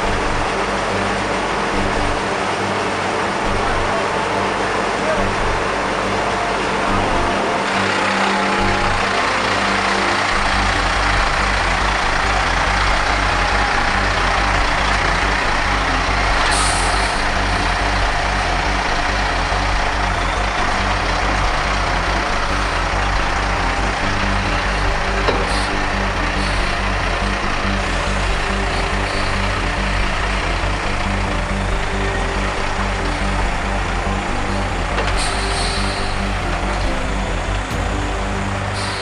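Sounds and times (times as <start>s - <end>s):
diesel truck engine running: 0.0s - 39.0s
air brakes hissing: 7.7s - 31.6s, 32.4s - 39.0s.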